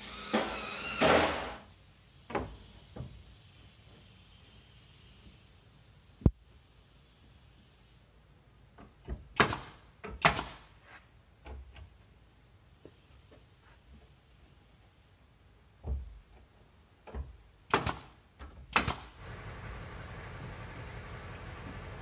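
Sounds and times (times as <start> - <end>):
nail gun firing into wood: 0.1 - 1.6, 9.4 - 10.7, 17.7 - 19.2.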